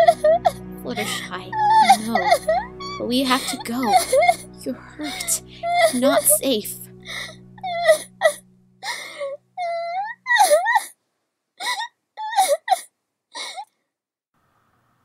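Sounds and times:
person sobbing: 0.0 - 6.4, 7.0 - 10.9.

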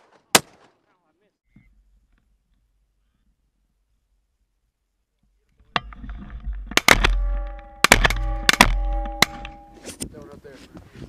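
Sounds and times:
shotgun shots: 0.0 - 0.8, 6.8 - 9.6.

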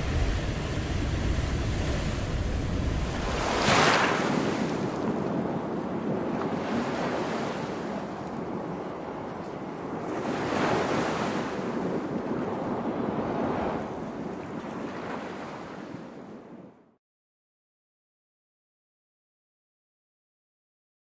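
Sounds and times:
sea water rushing and splashing: 0.0 - 16.5
wind buffeting microphone: 0.0 - 16.8.

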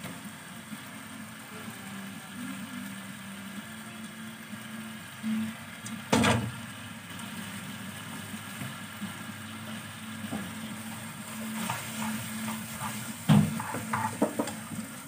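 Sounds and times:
gas stove hum: 0.0 - 15.0
cookware clatter: 13.3 - 14.6.

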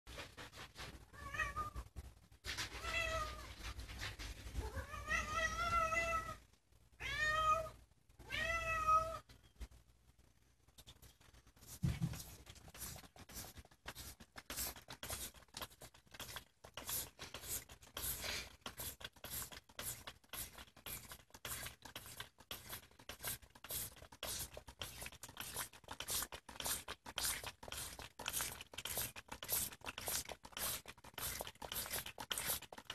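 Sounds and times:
spray bottle squirting: 12.6 - 32.9.

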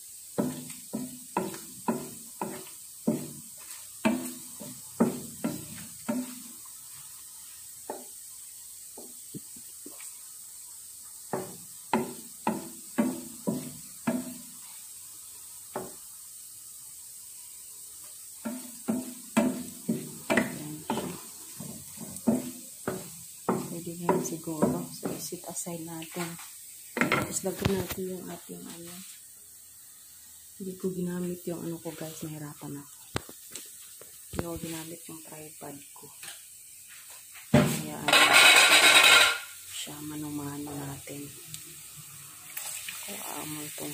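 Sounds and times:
oil sizzling: 0.0 - 43.9
wooden spatula scraping a pan: 0.3 - 8.2, 11.2 - 15.0, 18.1 - 29.3, 36.8 - 39.6.

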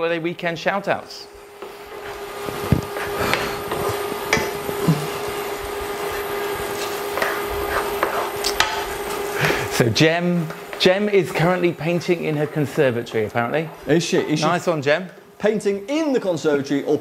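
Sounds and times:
steady low hum: 0.0 - 15.9
spatula scraping frying pan: 1.7 - 9.7.

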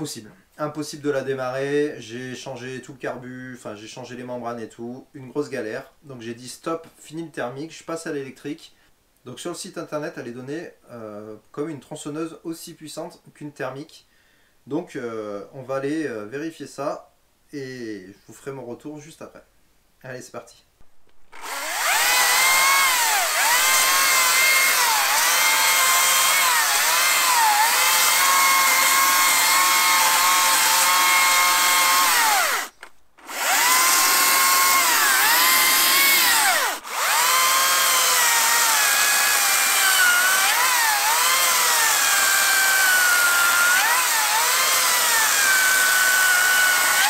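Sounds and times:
cordless chainsaw cutting wood: 21.3 - 47.0.

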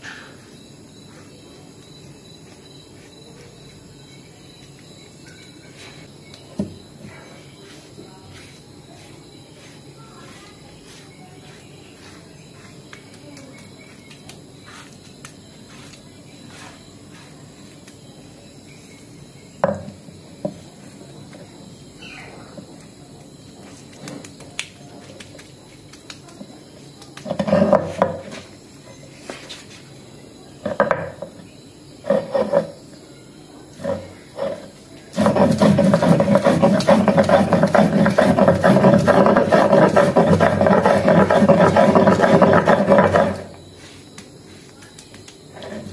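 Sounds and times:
stone grinding on stone slab: 27.2 - 28.4, 32.0 - 32.8, 33.8 - 43.6.

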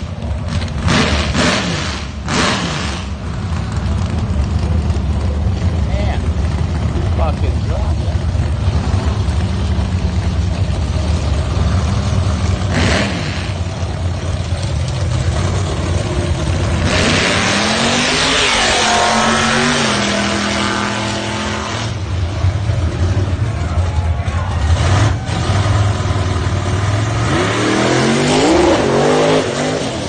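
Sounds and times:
drag car engines idling: 0.0 - 16.9, 21.9 - 27.2
car launching at full throttle: 16.7 - 22.2.

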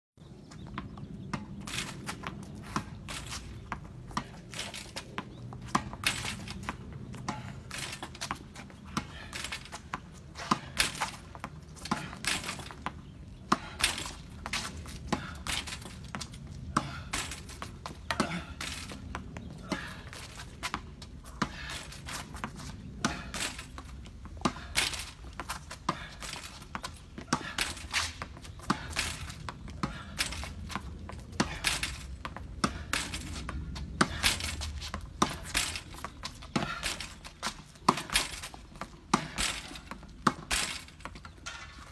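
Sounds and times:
ball bouncing on concrete: 0.4 - 41.9
racket striking tennis ball: 5.6 - 9.7, 10.4 - 11.2, 24.4 - 41.9.

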